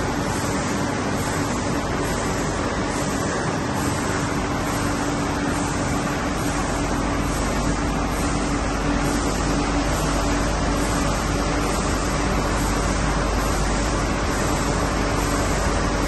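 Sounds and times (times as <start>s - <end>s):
constant low hum: 0.0s - 16.0s.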